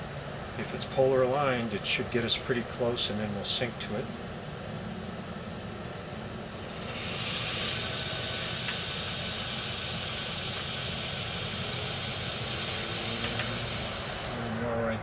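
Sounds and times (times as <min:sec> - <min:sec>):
high-pitched motor whir: 0:06.6 - 0:15.0.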